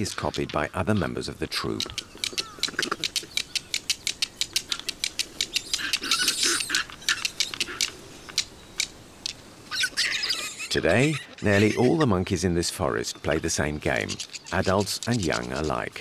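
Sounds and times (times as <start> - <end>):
stones clicking together: 0.0 - 0.6, 1.8 - 6.1.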